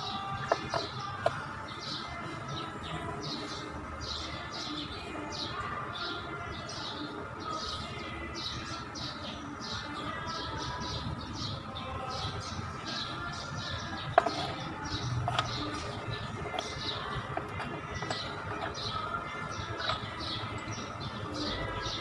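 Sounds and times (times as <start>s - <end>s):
small bird chirping: 6.8s - 22.0s.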